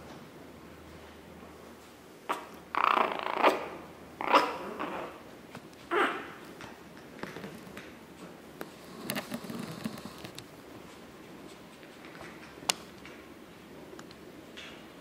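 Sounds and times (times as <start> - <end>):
puppy vocal sound: 2.3 - 5.3, 5.9 - 6.4.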